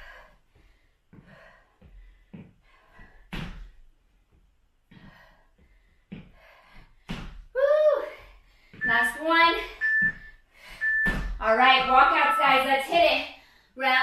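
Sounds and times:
woman breathing hard: 0:00.0 - 0:03.9, 0:04.9 - 0:08.8, 0:09.7 - 0:11.0.

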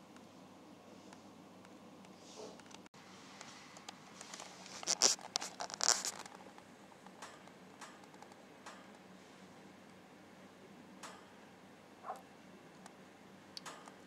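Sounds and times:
kittens rustling on fabric: 0:03.4 - 0:06.4
faint clicks: 0:13.6 - 0:14.0.

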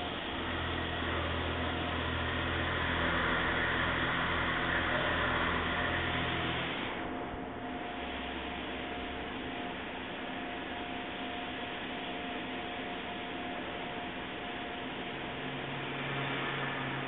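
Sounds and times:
milling machine cutting: 0:00.1 - 0:07.1.

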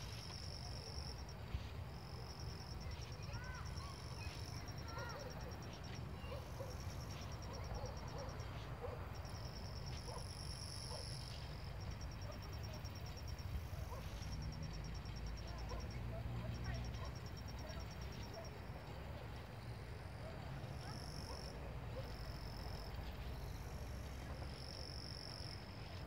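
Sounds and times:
insects chirping in trills: 0:00.0 - 0:26.0.

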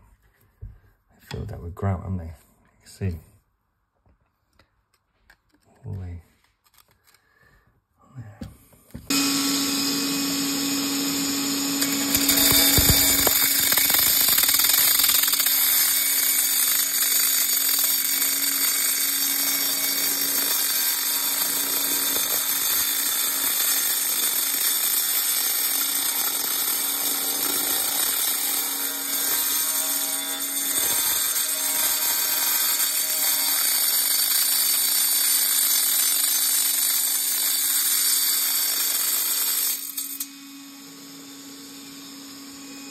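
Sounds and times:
angle grinder cutting tile: 0:09.0 - 0:42.9.

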